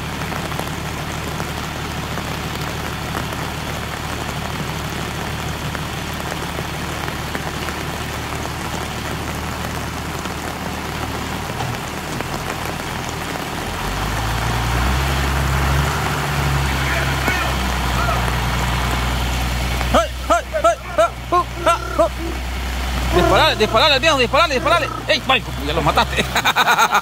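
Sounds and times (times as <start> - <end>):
rain falling: 0.0 - 27.0
tractor diesel engine running: 0.0 - 27.0.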